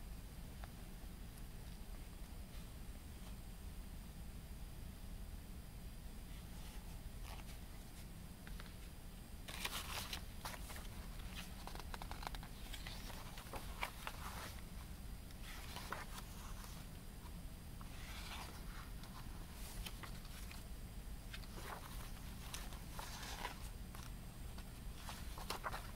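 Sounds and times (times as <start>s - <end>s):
low room hum: 0.0s - 25.9s
book pages being turned: 6.5s - 8.9s, 9.5s - 20.7s, 21.3s - 25.9s.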